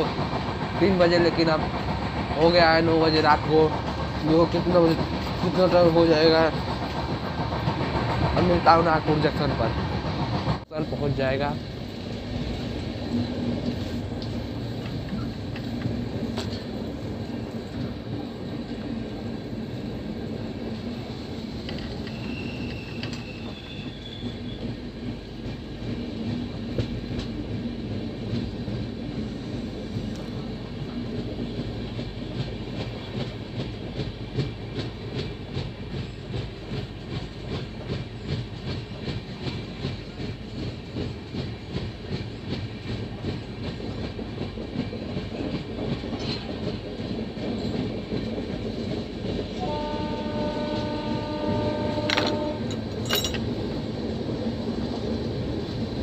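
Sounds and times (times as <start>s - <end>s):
train wheels rumbling on rails: 0.0s - 56.0s
wheels clacking over rail joints: 30.0s - 56.0s.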